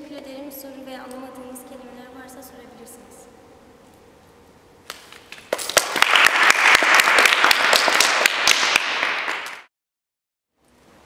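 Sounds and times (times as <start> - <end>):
audience applauding: 5.3 - 9.7.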